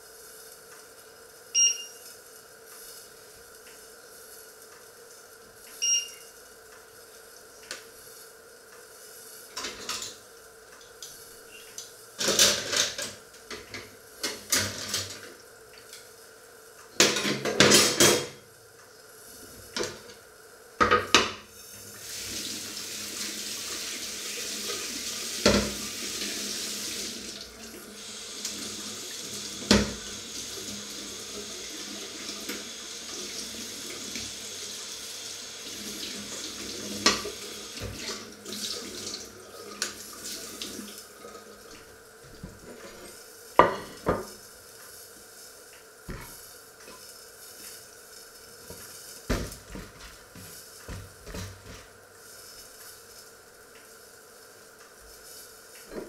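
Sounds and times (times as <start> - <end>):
tap water running into sink: 22.0 - 42.8.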